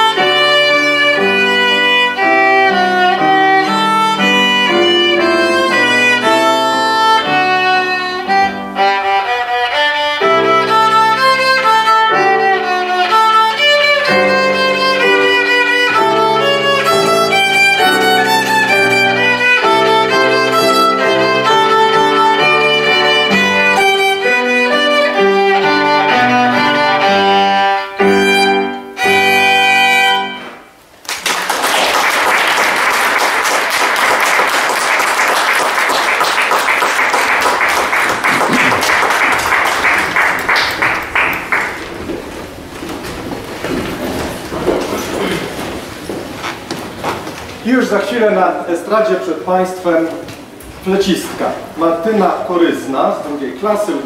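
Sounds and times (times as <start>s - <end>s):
live instrumental music: 0.0s - 31.1s, 32.6s - 47.9s
audience applause: 31.0s - 43.1s.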